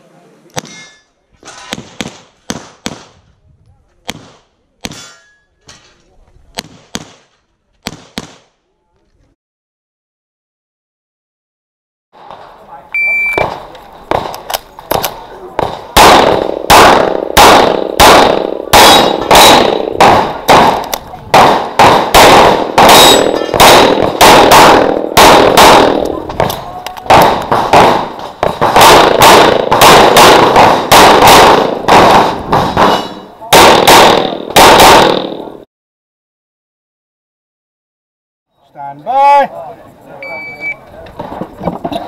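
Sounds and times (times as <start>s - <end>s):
faint gunshots: 4.0s - 5.1s, 6.5s - 8.6s, 13.4s - 35.5s
shot timer beep: 13.0s - 13.4s
pistol shots: 13.4s - 35.5s.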